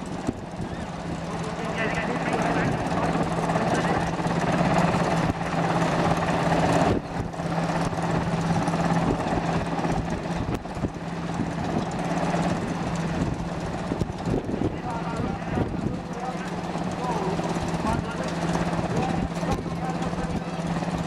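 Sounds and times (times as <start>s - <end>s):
helicopter hovering: 0.0s - 21.0s.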